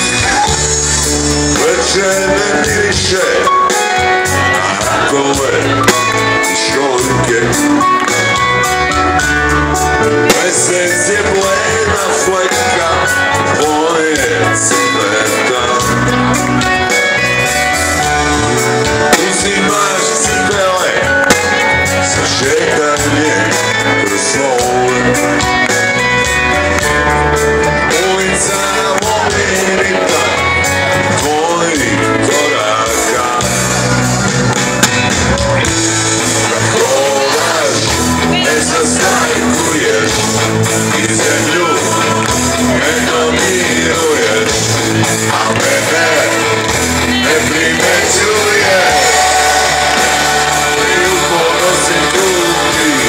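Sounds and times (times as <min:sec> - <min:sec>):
rock band playing live: 0:00.0 - 0:53.0.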